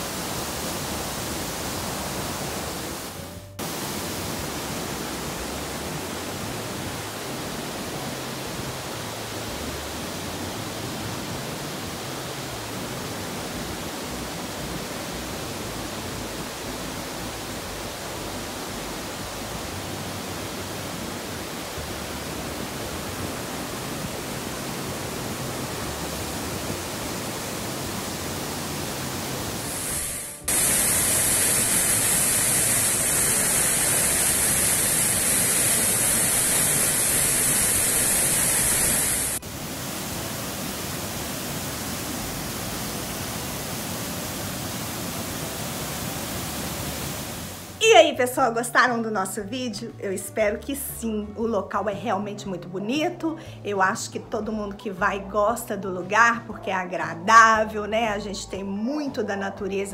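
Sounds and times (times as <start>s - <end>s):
waterfall rushing: 0.0s - 47.8s.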